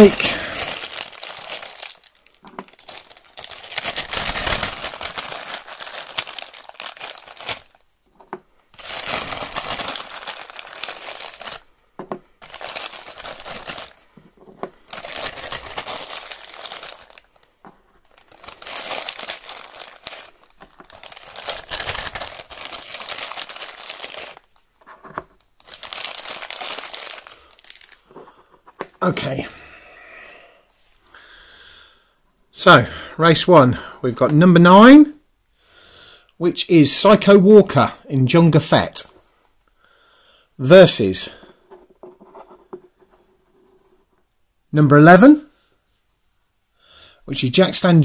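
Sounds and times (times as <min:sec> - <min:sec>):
plastic bag crinkling: 0:00.0 - 0:07.9, 0:08.7 - 0:28.2.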